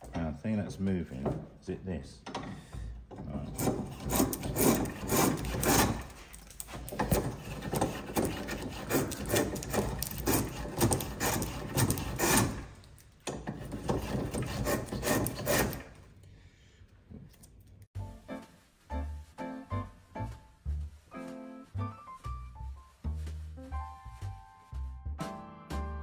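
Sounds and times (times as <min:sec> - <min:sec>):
plane rasping strokes on wood: 0:03.3 - 0:12.7, 0:13.4 - 0:15.9.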